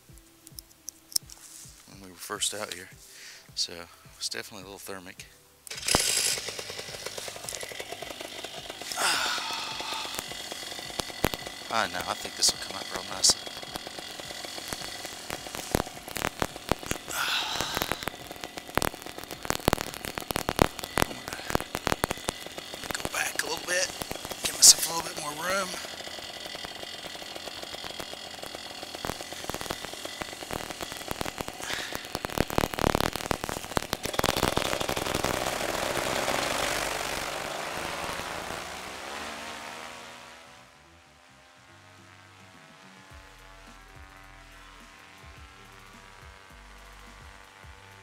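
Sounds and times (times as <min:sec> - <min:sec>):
wind and handling crackle: 0:05.6 - 0:37.2
paramotor engine and propeller: 0:05.6 - 0:48.0.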